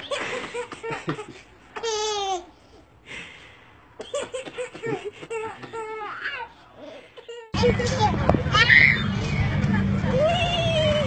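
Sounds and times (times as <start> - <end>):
baby giggling: 0.0 - 2.5
baby laughing: 0.0 - 2.5.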